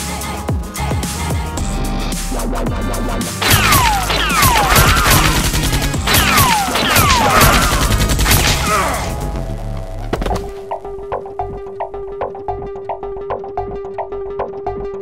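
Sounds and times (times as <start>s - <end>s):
electronic music: 0.8s - 10.0s
rapid gunfire sound effects: 3.4s - 9.1s.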